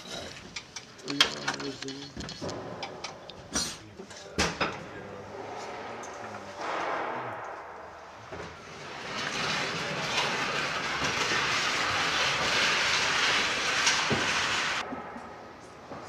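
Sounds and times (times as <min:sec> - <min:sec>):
metal stand rattling across concrete: 0:08.8 - 0:14.8.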